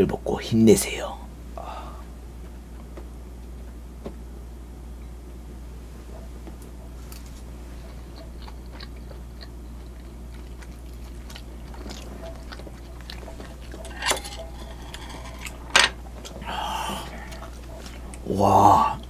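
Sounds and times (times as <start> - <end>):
person chewing: 7.0 - 19.0
chopsticks clacking on plate: 12.3 - 16.0.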